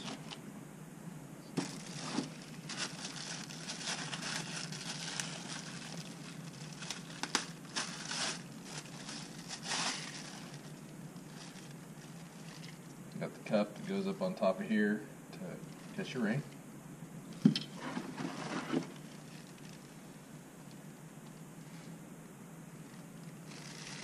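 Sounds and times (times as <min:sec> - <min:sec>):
plastic packaging crinkling: 0:01.6 - 0:12.9, 0:17.8 - 0:20.0, 0:23.3 - 0:24.0.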